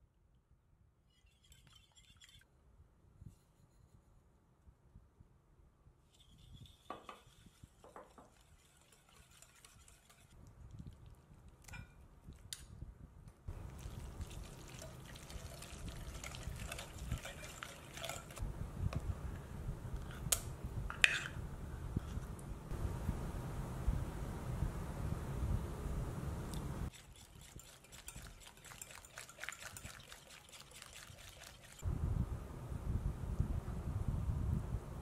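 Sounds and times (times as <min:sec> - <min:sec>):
puree being spooned: 0:01.1 - 0:02.4, 0:06.1 - 0:12.4, 0:13.5 - 0:18.4, 0:26.9 - 0:31.8
whisk stirring batter in glass bowl: 0:01.1 - 0:02.4, 0:06.1 - 0:10.9, 0:13.7 - 0:18.4, 0:26.9 - 0:31.8
sugar being poured: 0:13.7 - 0:18.4, 0:26.9 - 0:31.8.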